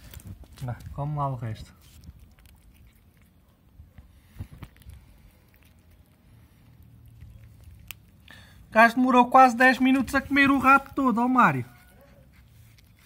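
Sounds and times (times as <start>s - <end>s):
cat chewing: 1.7s - 8.7s, 11.8s - 13.0s.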